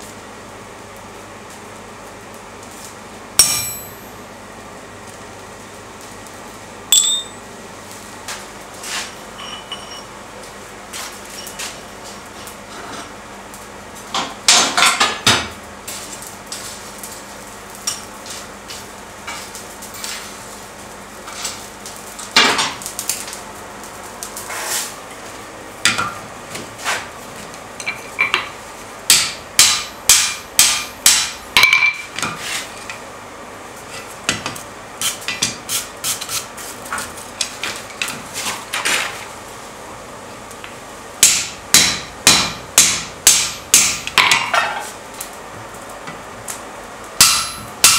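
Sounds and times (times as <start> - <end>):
hammer striking steel on anvil: 3.4 - 4.2, 6.9 - 7.4, 29.1 - 32.1, 41.2 - 44.5, 47.2 - 47.9.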